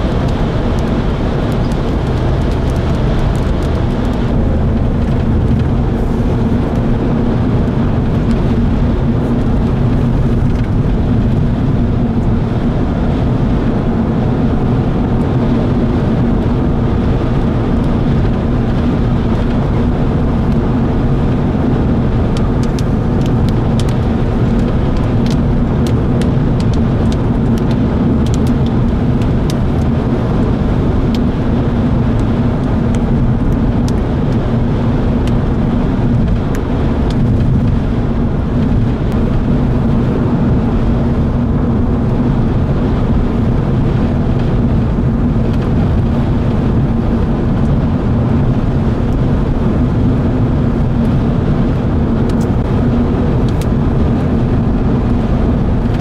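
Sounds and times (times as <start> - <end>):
vehicle engine rumbling: 0.0 - 56.0.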